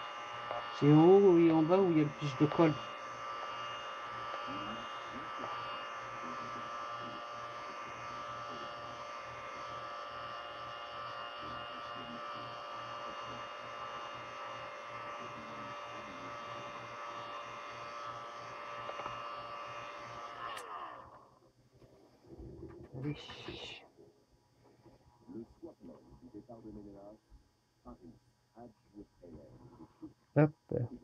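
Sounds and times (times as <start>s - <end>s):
heat gun fan whine: 0.0s - 22.0s.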